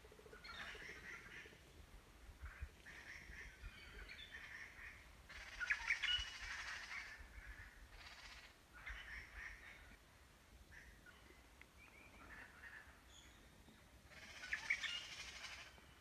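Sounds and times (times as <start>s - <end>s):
birds chirping and calling: 0.3s - 1.6s, 2.9s - 9.9s, 14.1s - 16.0s.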